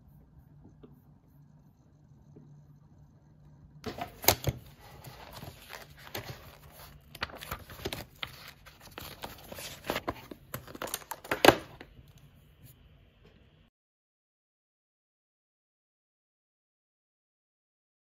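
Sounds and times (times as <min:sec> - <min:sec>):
notepad pages flipping: 0:03.8 - 0:11.9.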